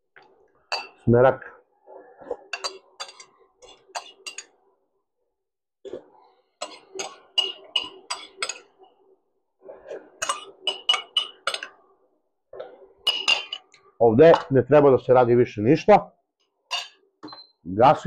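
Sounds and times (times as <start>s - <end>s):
metal spoon clinking on pot: 0.7s - 1.0s, 2.5s - 4.6s, 6.6s - 8.8s, 10.2s - 11.8s, 13.0s - 14.5s, 16.7s - 17.0s.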